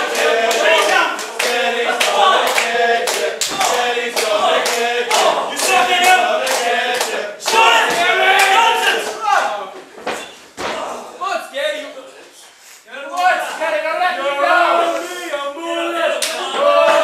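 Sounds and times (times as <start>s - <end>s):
crowd clapping along: 0.0s - 8.8s
crowd chanting in unison: 0.0s - 9.2s, 14.1s - 17.0s.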